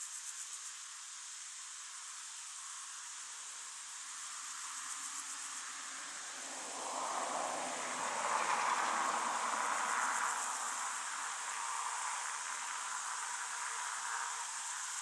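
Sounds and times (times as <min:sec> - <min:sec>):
insects chirring: 0:00.0 - 0:15.0
vehicle passing on road: 0:06.2 - 0:13.0.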